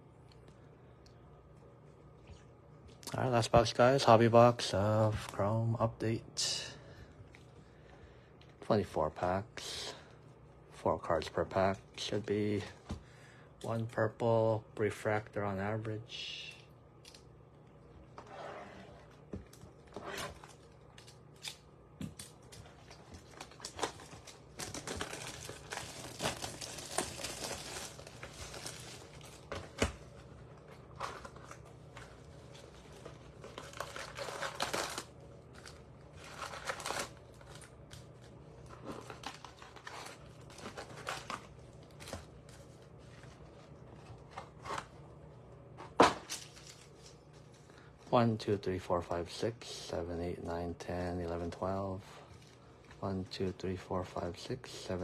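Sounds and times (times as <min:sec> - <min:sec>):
plastic wrap tearing and crinkling: 0:19.5 - 0:44.9, 0:46.0 - 0:47.6.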